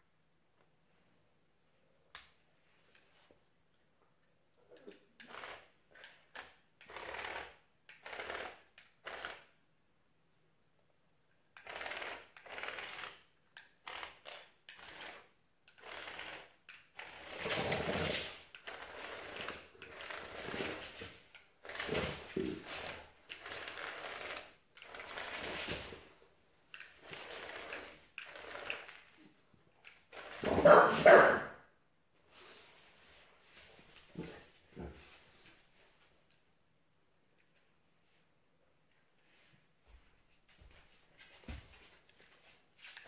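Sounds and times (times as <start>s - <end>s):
toy robot motors whirring: 4.8s - 9.5s, 11.6s - 25.9s, 26.7s - 29.2s, 29.8s - 30.7s.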